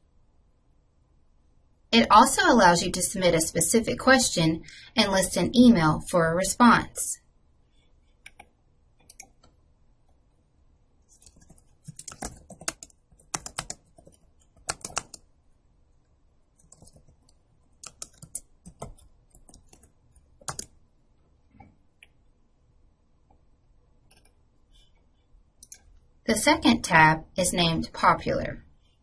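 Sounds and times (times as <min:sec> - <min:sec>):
computer keyboard typing: 0:08.2 - 0:09.6, 0:11.1 - 0:15.3, 0:16.5 - 0:20.8, 0:24.1 - 0:24.4.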